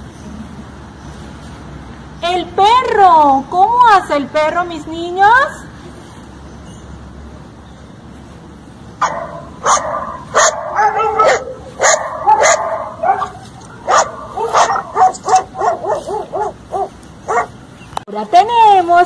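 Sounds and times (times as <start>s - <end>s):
dog barking and yipping: 9.0s - 17.6s.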